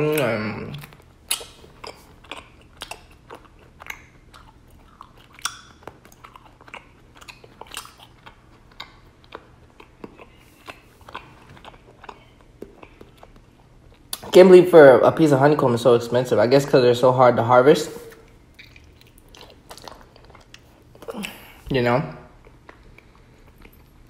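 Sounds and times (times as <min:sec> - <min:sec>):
wet smacking clicks of chewing: 0:00.1 - 0:14.3, 0:18.2 - 0:21.4.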